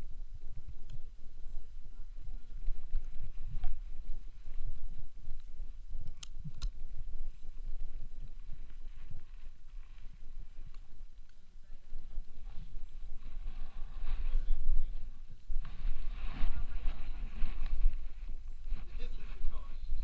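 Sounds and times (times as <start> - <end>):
sharp clicks: 5.4 - 6.8.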